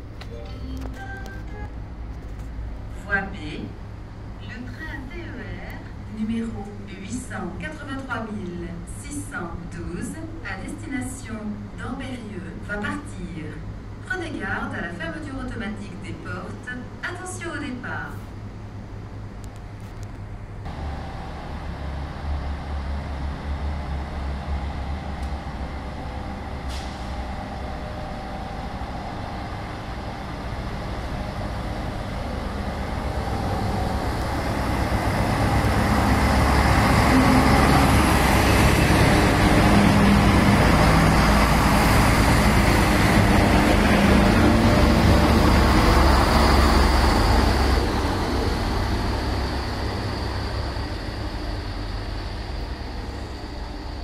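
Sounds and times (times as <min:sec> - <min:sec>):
diesel railcar engine rumble: 0:00.0 - 0:54.0.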